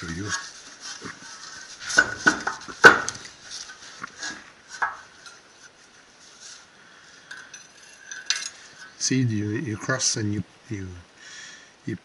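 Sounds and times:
metal tools clanking on workbench: 0:07.3 - 0:08.9.

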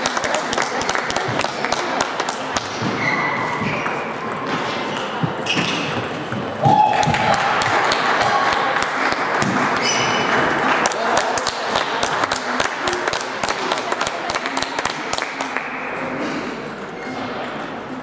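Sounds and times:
hubbub of voices: 0:00.0 - 0:18.0
table tennis balls clicking: 0:00.0 - 0:18.0.

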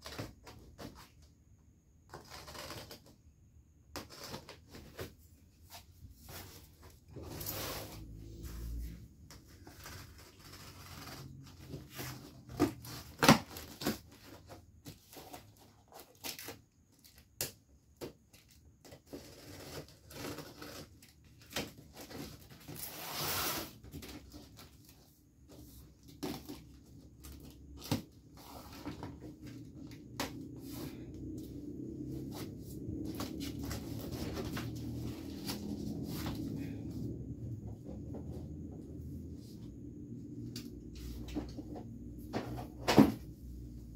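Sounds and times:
knife slitting packing tape: 0:02.1 - 0:03.1
tearing scrape: 0:07.2 - 0:08.4, 0:22.1 - 0:23.8
cardboard flaps rustling: 0:19.1 - 0:36.8.

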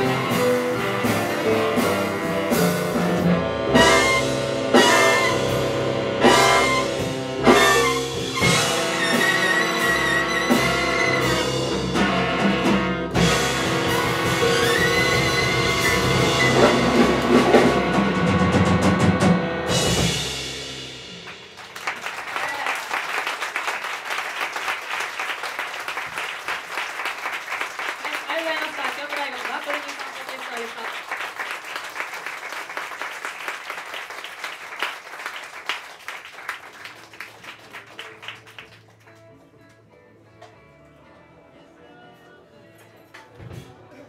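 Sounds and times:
big band held chord: 0:00.0 - 0:21.7
audience applauding: 0:21.2 - 0:39.5
faint music with held notes: 0:37.5 - 0:44.0.

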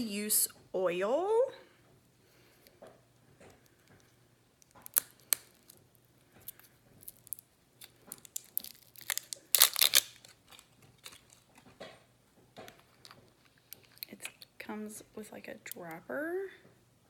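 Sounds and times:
plastic clicks and crinkling: 0:02.6 - 0:14.8
plastic packaging tearing: 0:04.6 - 0:05.8, 0:06.4 - 0:11.6.

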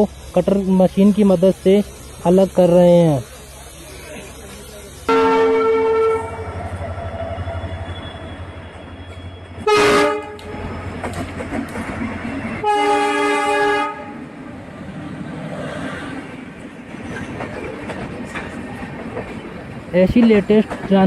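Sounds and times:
train wheels rhythmic rumble: 0:00.0 - 0:21.0
locomotive horn blasts: 0:05.1 - 0:06.6, 0:09.1 - 0:10.6, 0:12.6 - 0:14.2.

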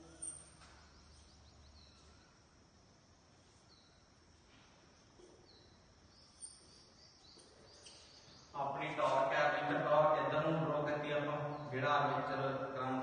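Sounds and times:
faint high bird chirps: 0:00.0 - 0:02.5, 0:03.4 - 0:09.1, 0:10.7 - 0:12.9.

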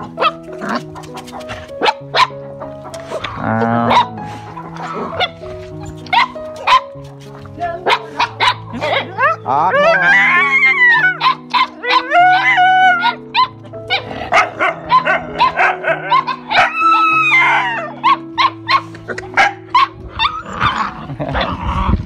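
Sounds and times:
background music with low notes: 0:00.0 - 0:22.0
puppies yipping and barking: 0:00.0 - 0:22.0
puppy whining: 0:03.3 - 0:06.4, 0:07.9 - 0:21.9.

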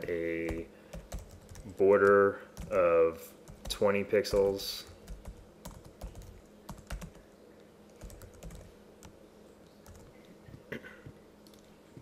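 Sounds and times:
keyboard typing: 0:00.0 - 0:02.8, 0:03.5 - 0:07.2, 0:07.9 - 0:09.1, 0:09.8 - 0:10.1.

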